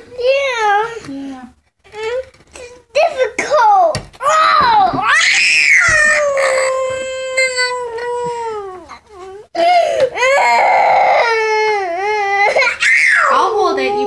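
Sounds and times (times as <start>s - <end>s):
toddler crying wail: 4.4s - 14.0s.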